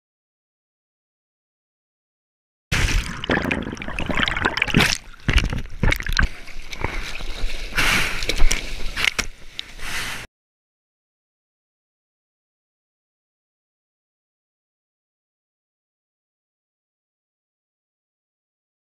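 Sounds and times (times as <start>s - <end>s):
seawater splashing against camera: 2.8s - 10.2s.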